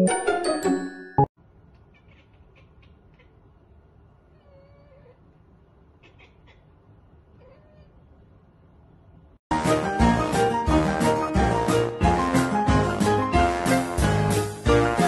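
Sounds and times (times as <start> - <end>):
cat meowing faintly: 1.9 - 3.4, 4.3 - 5.2, 7.3 - 8.1.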